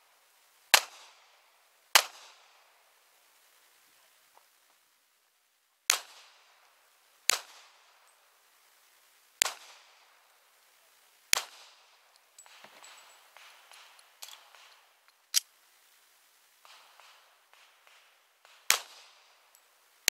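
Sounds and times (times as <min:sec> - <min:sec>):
soft irregular noises: 0:01.2 - 0:20.0
pistol shots echoing: 0:07.3 - 0:08.0, 0:09.4 - 0:10.2, 0:11.3 - 0:15.0, 0:16.6 - 0:19.6.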